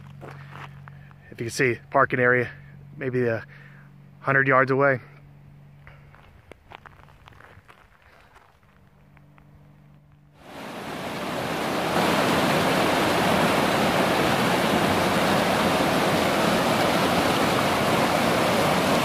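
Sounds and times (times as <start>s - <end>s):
creek rushing over boulders: 10.4s - 19.0s.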